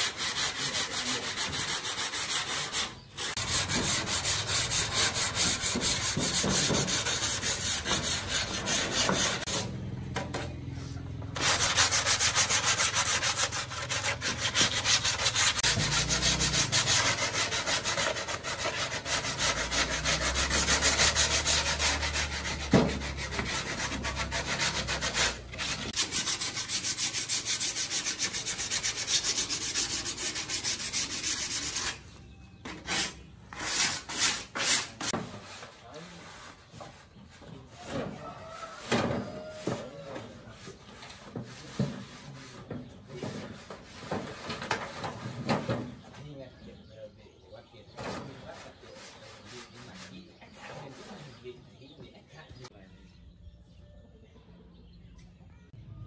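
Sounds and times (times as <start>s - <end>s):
abrasive rubbing on a surface: 0.0s - 9.7s, 11.4s - 32.1s, 38.7s - 45.9s, 48.0s - 51.4s.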